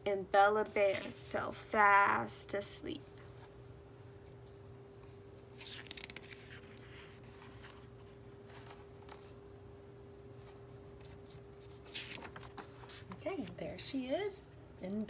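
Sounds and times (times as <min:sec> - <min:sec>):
steady faint hum: 0:00.0 - 0:15.0
book pages rustling: 0:00.6 - 0:01.3, 0:04.2 - 0:09.4, 0:10.2 - 0:13.6.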